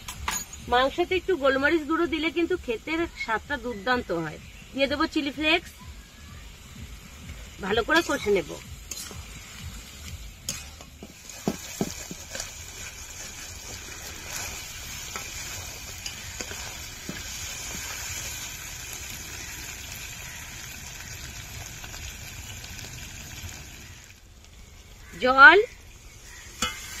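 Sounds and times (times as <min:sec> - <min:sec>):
meat sizzling in a pan: 0:06.0 - 0:27.0.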